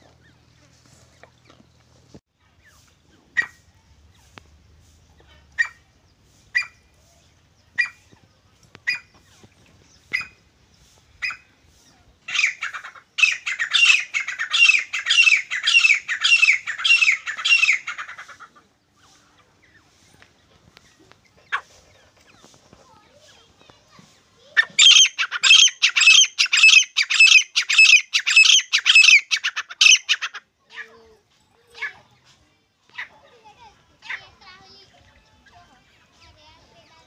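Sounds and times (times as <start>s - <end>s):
francolin calling: 13.2s - 18.2s, 24.8s - 30.3s.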